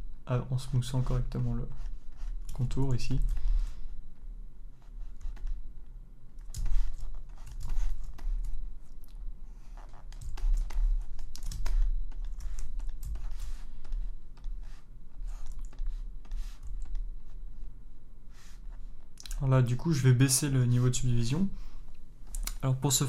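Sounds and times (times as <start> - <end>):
low electrical hum: 0.0 - 23.0
computer keys clicking: 6.4 - 9.2, 10.1 - 14.5.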